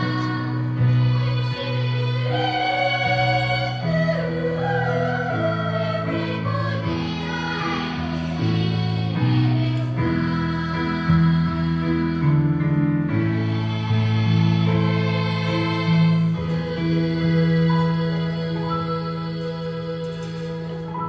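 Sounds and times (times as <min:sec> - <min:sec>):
children's choir singing: 0:00.0 - 0:21.0
instrumental accompaniment: 0:00.0 - 0:21.0.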